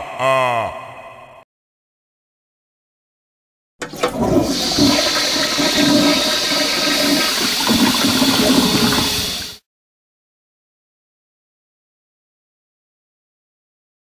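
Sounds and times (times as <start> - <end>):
toilet flushing: 3.8 - 9.6.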